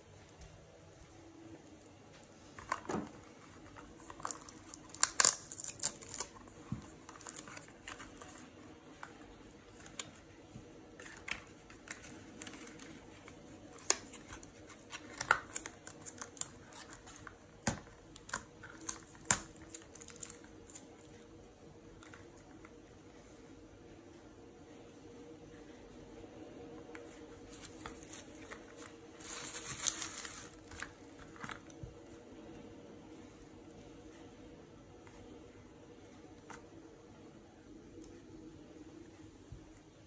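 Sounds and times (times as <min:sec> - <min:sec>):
cardboard box rustling: 0:27.5 - 0:30.9.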